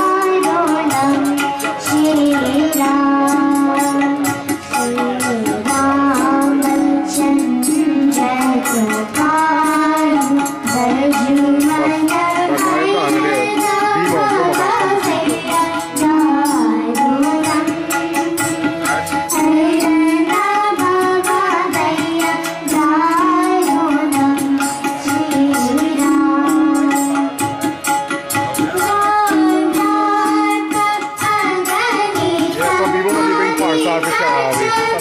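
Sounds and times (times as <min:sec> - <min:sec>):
harmonium: 0:00.0 - 0:35.0
tabla beat: 0:00.0 - 0:35.0
person singing: 0:10.8 - 0:17.4, 0:31.8 - 0:35.0.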